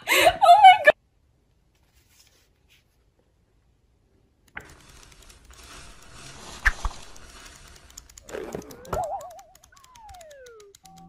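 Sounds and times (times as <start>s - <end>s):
sharp click: 4.5s - 11.0s.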